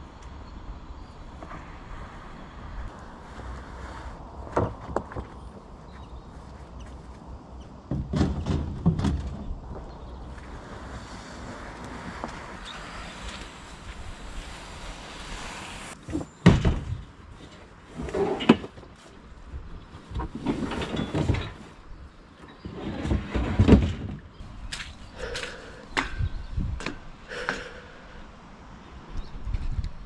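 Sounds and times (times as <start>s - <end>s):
wind on microphone: 24.4s - 27.3s, 29.0s - 30.0s.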